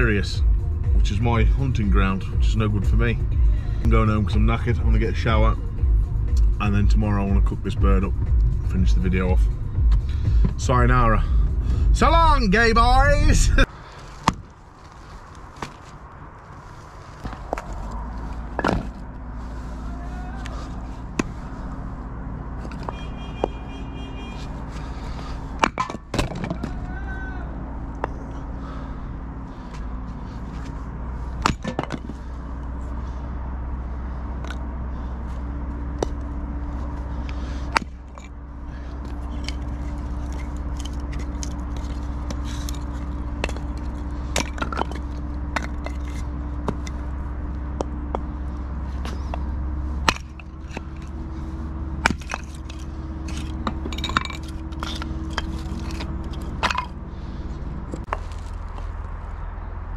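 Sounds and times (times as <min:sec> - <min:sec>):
steady low hum: 0:00.0 - 0:23.6
hatchet chopping wood: 0:37.7 - 0:38.0, 0:49.0 - 0:51.1, 0:52.0 - 0:57.0.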